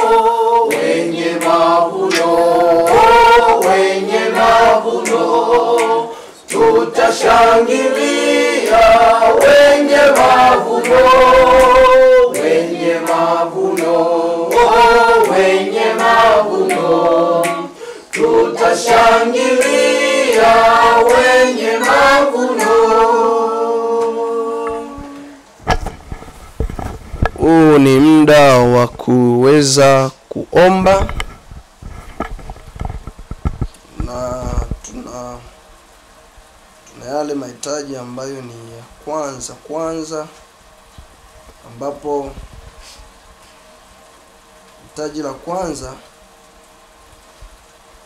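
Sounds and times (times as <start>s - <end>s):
group singing a cappella: 0.0s - 25.5s.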